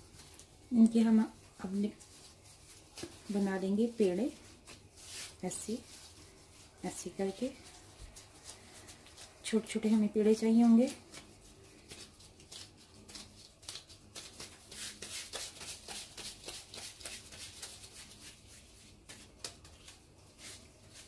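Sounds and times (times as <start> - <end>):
gloved hands rubbing dough: 0.0 - 21.0.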